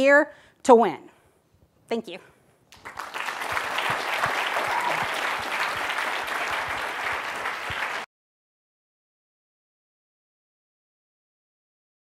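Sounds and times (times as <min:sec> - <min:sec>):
audience applauding: 0:02.7 - 0:08.1.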